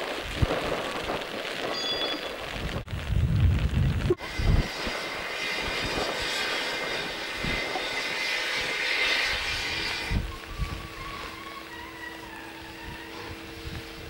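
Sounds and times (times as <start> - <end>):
steam locomotive hissing: 4.2 - 14.0.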